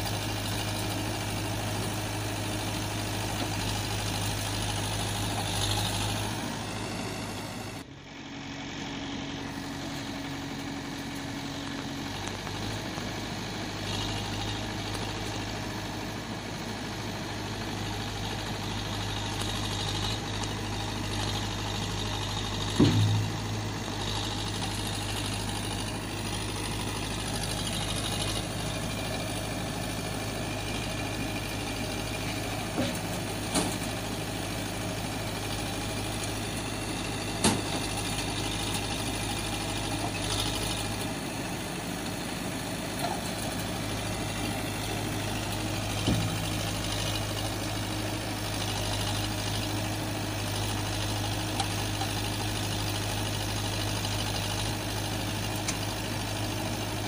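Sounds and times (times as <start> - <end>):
idling engine drone: 0.0 - 57.0
sharp clicks and knocks: 22.7 - 23.4.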